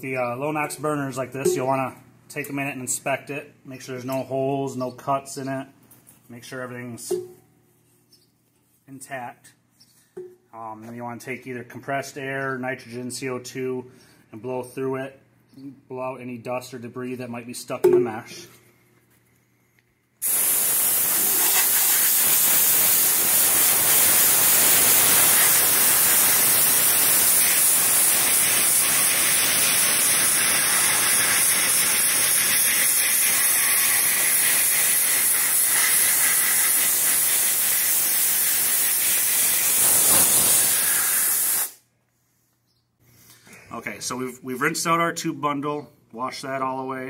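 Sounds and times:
air blowgun hissing: 20.2s - 41.8s.

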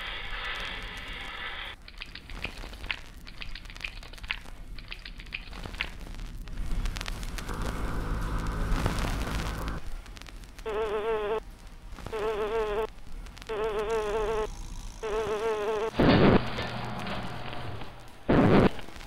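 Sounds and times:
low hum: 6.0s - 10.6s, 12.9s - 19.0s
loud burst of noise: 6.6s - 10.4s, 15.9s - 19.0s
fly buzzing: 10.6s - 11.4s, 12.0s - 16.5s.

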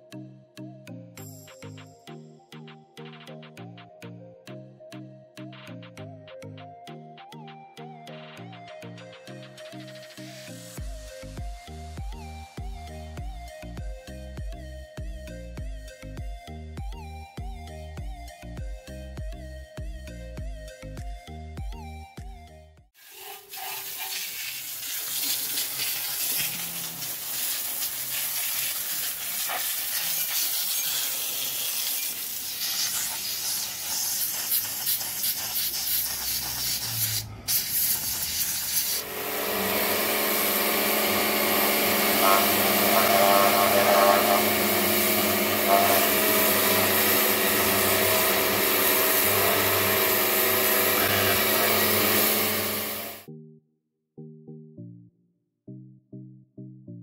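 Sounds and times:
steam cleaner hissing: 23.0s - 53.2s
machine hum: 39.0s - 53.3s.

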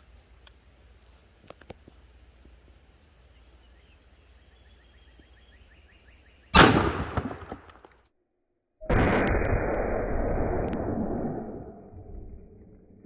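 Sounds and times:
shotgun shot: 6.6s - 7.6s.

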